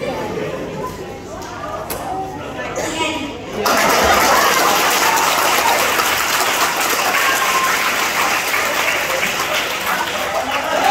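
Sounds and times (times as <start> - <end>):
audience applause: 3.6 - 10.9.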